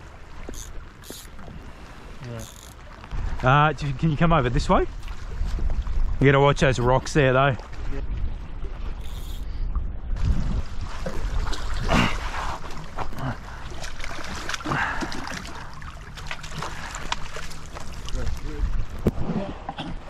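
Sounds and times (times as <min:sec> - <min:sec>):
water sloshing and splashing: 0:00.0 - 0:20.0
wind rumble on microphone: 0:03.0 - 0:13.4, 0:18.0 - 0:20.0.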